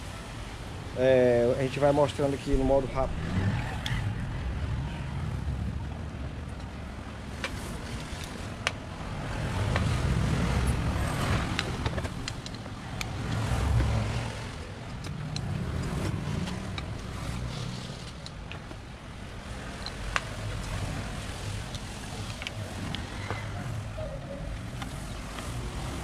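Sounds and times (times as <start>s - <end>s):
hand tools clicking on metal: 11.5s - 14.0s, 14.9s - 17.0s.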